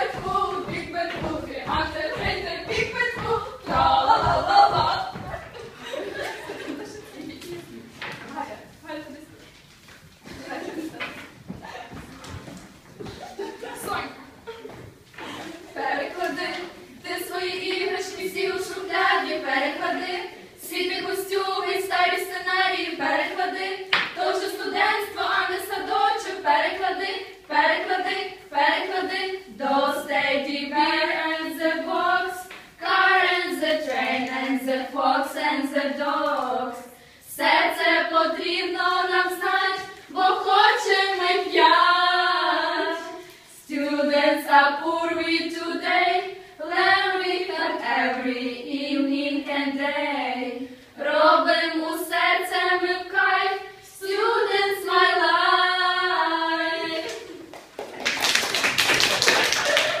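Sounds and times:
women singing unaccompanied: 0.0s - 6.9s, 15.2s - 57.5s
applause: 57.5s - 60.0s.

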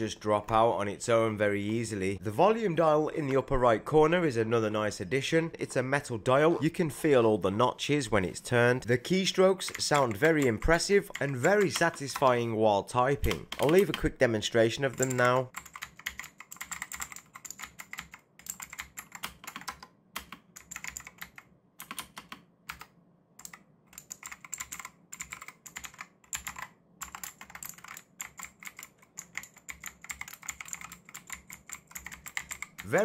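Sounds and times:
fast typing on mechanical keyboard: 9.6s - 12.3s, 13.2s - 14.1s, 14.8s - 33.0s.

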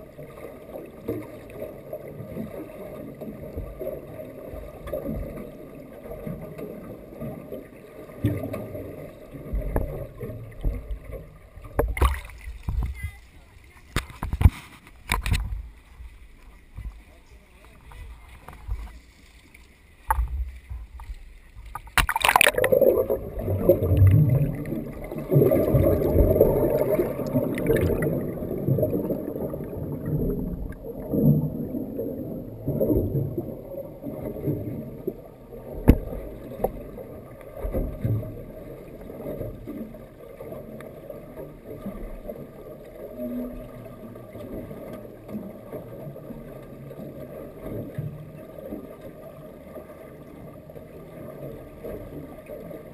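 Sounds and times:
muffled underwater churn and bubbles: 0.0s - 52.9s
splash into water: 11.8s - 12.7s, 21.8s - 28.2s.

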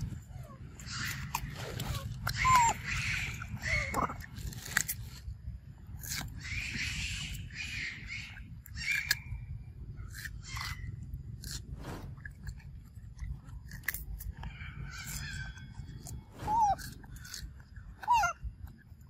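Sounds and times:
monkey crunching cucumber: 0.8s - 7.6s, 8.2s - 19.0s.

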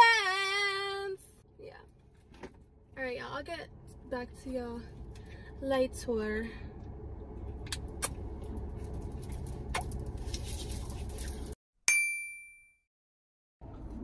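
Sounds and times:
car interior rumble: 0.0s - 11.6s
bell-like ding: 11.9s - 12.9s.

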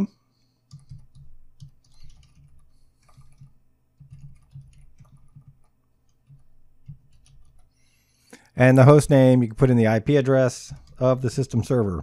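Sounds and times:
computer keyboard typing: 0.7s - 7.8s, 10.5s - 11.8s.

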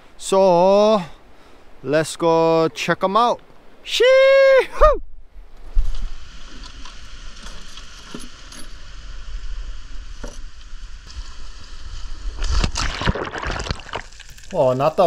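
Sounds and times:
steady hiss: 5.4s - 12.8s
dive gear clinking: 7.4s - 8.8s
diver splashing into water: 12.4s - 14.5s.

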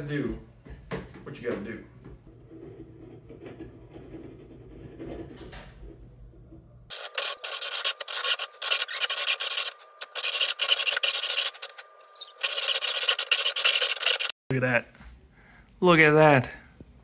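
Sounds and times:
hacksaw cutting metal: 6.9s - 14.3s.

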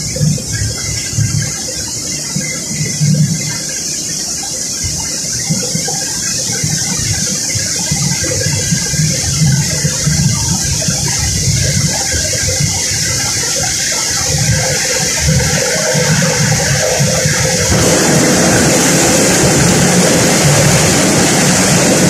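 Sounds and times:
mill machinery rushing hiss: 0.0s - 22.0s
low rumble: 17.7s - 22.0s.

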